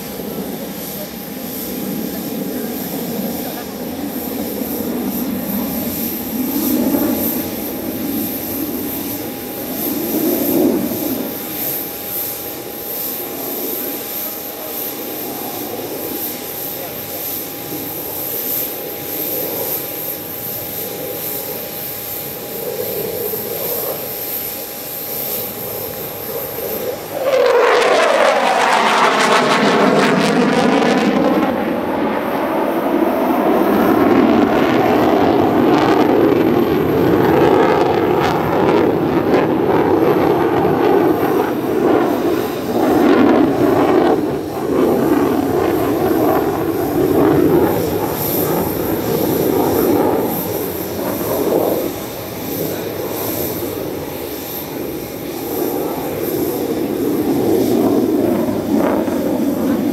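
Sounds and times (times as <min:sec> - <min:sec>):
jet engines roaring: 0:00.0 - 0:59.9
jet whoosh falling in pitch: 0:26.8 - 0:35.2.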